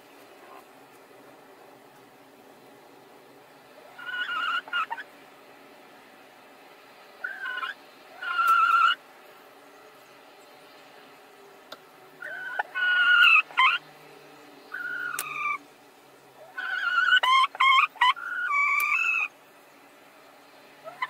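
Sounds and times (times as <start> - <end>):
hens squawking: 3.8 - 5.2, 7.2 - 9.0, 12.2 - 13.9, 14.7 - 15.6, 16.4 - 19.4, 20.8 - 21.0.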